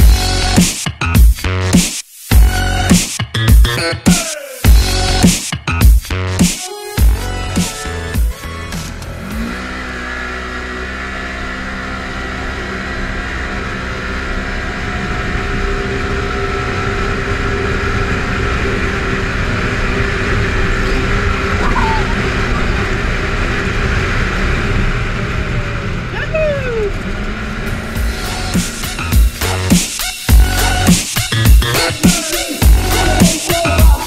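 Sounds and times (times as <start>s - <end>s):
vehicle engine running: 7.0s - 34.0s
wind: 9.4s - 29.1s.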